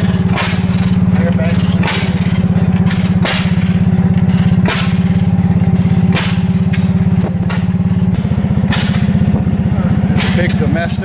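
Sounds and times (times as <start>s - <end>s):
engine running: 0.0s - 11.0s
sharp bang: 1.6s - 9.5s.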